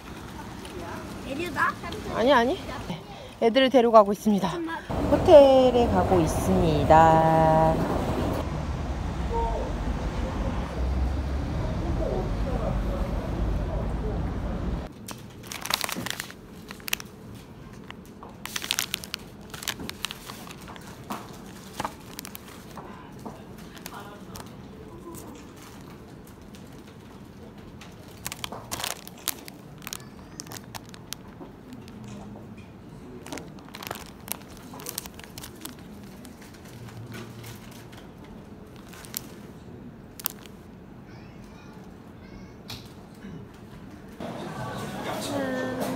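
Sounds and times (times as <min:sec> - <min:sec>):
plastic sleeve crinkling: 0:15.1 - 0:26.9, 0:27.9 - 0:32.2, 0:33.2 - 0:38.0, 0:38.7 - 0:40.6
paper brochures moving: 0:15.1 - 0:32.2, 0:33.1 - 0:40.6.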